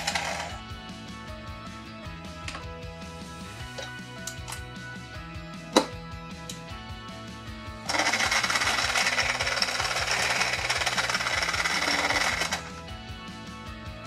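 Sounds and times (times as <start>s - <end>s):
toy blender buzzing whir: 0.0s - 0.6s, 7.9s - 12.7s.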